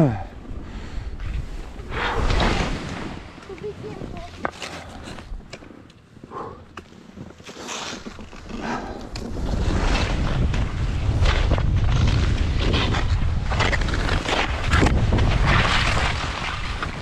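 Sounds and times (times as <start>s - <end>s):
wind rumbling on microphone: 0.0s - 5.5s, 8.4s - 17.0s
skis scraping through snow: 6.9s - 17.0s.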